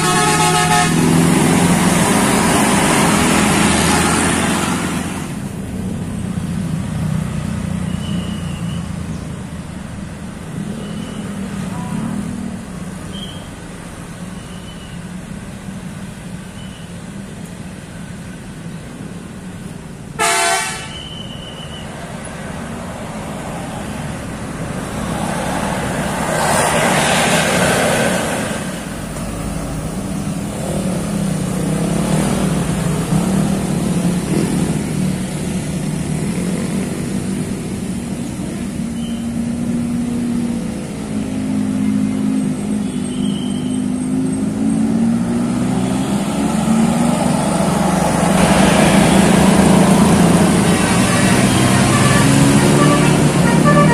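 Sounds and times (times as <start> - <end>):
vehicle horn toot: 0.0 - 1.0, 20.2 - 21.8, 50.6 - 53.9
traffic passing: 0.0 - 53.9.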